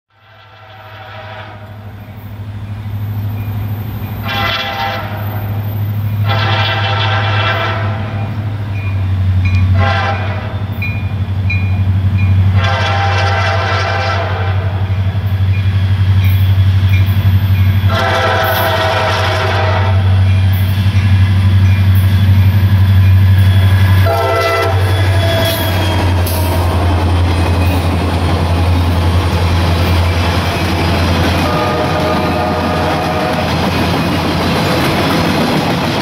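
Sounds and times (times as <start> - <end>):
locomotive air horn blasts: 0.1 - 2.0, 4.2 - 8.5, 9.6 - 10.8, 12.4 - 15.0, 17.8 - 20.3, 23.9 - 26.9, 30.9 - 33.6.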